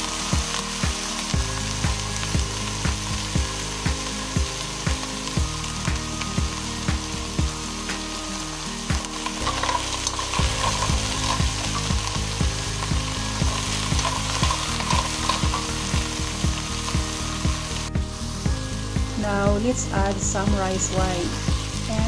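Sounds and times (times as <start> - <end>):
low thumping beat: 0.0 - 8.0, 10.3 - 22.0
food sizzling in oil: 0.0 - 22.0
spatula stirring in wok: 9.2 - 17.7.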